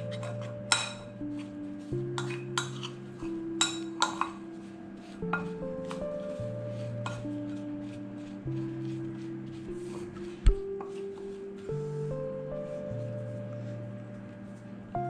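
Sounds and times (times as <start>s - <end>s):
background music with held notes: 0.0s - 15.0s
metal spoon clinking glass bowl: 0.1s - 1.1s, 3.6s - 4.4s.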